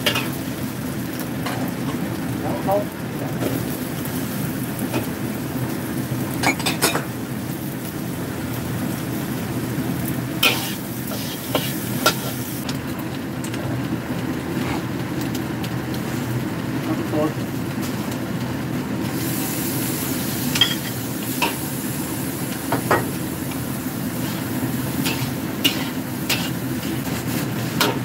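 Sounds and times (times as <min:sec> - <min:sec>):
onion and egg sizzling in a wok: 0:00.0 - 0:28.0
metal spatula scraping a pan: 0:10.4 - 0:12.4, 0:25.0 - 0:28.0.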